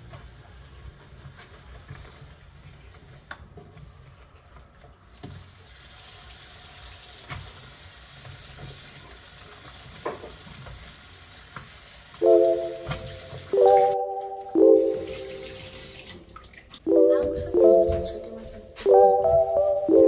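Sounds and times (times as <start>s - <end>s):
tap water running into sink: 5.1s - 16.8s.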